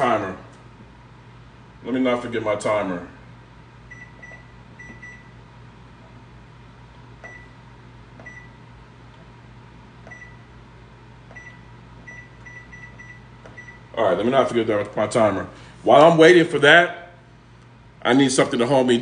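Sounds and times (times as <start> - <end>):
low steady hum: 0.0 - 19.0
microwave keypad beeping: 3.9 - 5.4, 7.2 - 7.6, 8.2 - 8.6, 10.0 - 10.5, 11.3 - 13.9.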